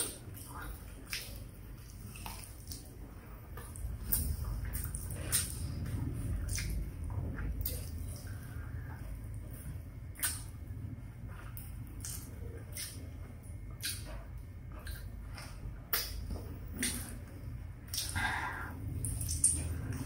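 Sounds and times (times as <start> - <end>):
person chewing food: 0.0 - 20.0
wet mouth smacks and clicks: 3.6 - 5.8, 6.5 - 6.8, 10.2 - 10.6, 11.6 - 13.1, 13.7 - 14.2, 14.8 - 17.1, 17.9 - 18.2, 19.0 - 20.0.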